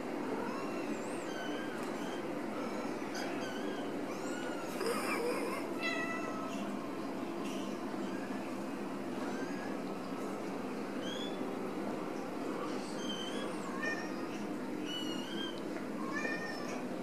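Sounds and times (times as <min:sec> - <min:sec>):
kittens mewing: 0:00.4 - 0:06.8.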